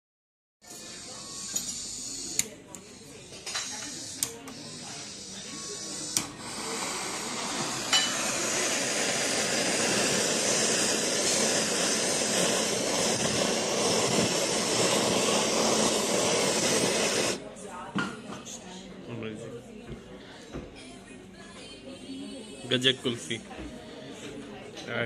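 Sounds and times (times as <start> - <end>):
blowtorch hissing: 0.8 - 17.4.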